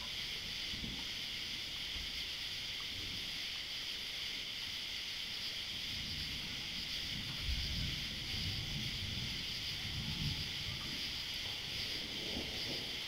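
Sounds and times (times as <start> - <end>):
insect chorus: 0.0 - 13.0
wind rumble on microphone: 5.6 - 13.0.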